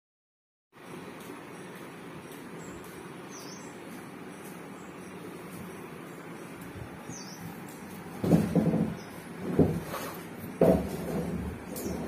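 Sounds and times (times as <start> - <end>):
knocking and grinding on plastic tank: 8.1 - 12.0.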